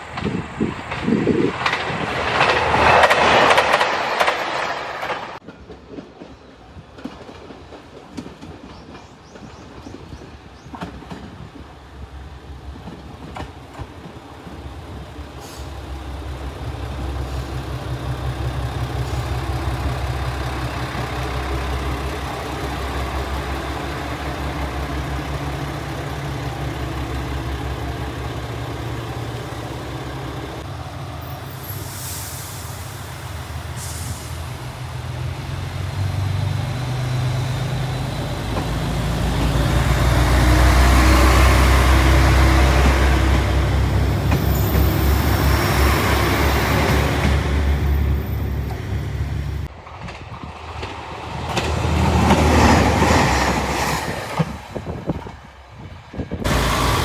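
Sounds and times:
diesel train engine drone: 10.2s - 57.0s
air release hisses: 31.6s - 34.5s.

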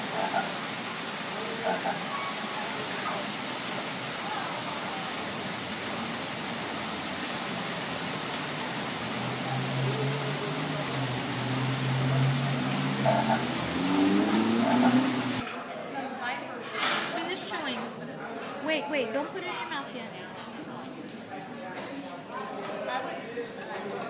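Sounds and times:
fountain water splashing: 0.0s - 15.4s.

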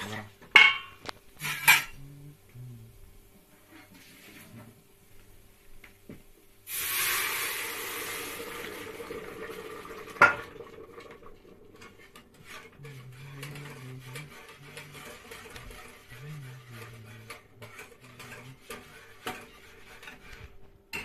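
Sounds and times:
stirring scraping in pot: 1.1s - 2.3s, 3.5s - 4.8s, 6.7s - 21.0s
water pouring into pot hissing: 6.6s - 13.2s
metal jug clanking against pot: 8.6s - 12.8s.

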